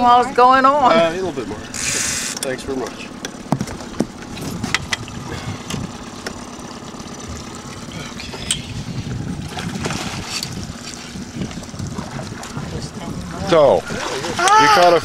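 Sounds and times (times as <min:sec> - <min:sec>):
outboard motor idling: 0:00.0 - 0:15.0
water sounds: 0:00.0 - 0:15.0
sharp knocks: 0:03.2 - 0:05.0.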